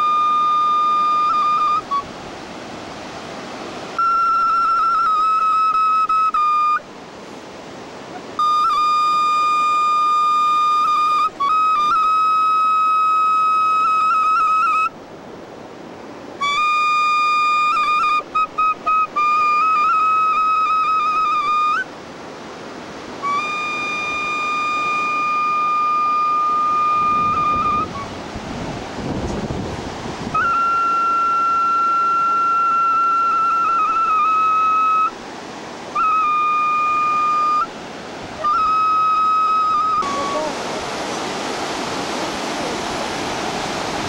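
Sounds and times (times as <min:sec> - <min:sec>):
flute-like long held notes: 0:00.0 - 0:02.2, 0:03.9 - 0:06.9, 0:08.1 - 0:15.0, 0:16.4 - 0:22.0, 0:23.1 - 0:28.4, 0:30.3 - 0:35.2, 0:35.8 - 0:40.8.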